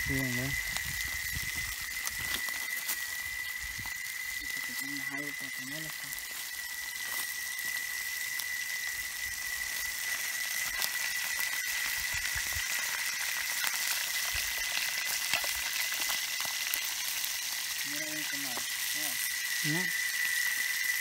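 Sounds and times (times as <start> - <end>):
fish sizzling in oil: 0.0 - 21.0
thin high-pitched tone: 2.1 - 9.0, 17.8 - 21.0.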